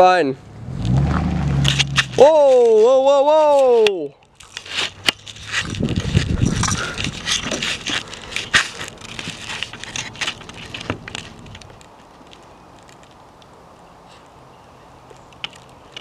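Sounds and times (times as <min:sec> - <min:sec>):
faint steady background noise: 0:00.0 - 0:16.0
crunching and crackling: 0:01.5 - 0:14.4, 0:15.0 - 0:16.0.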